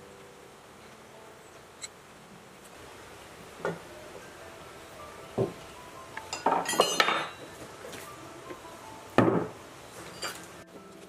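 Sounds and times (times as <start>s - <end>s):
tool clinking on metal: 6.3s - 7.5s, 10.0s - 10.5s.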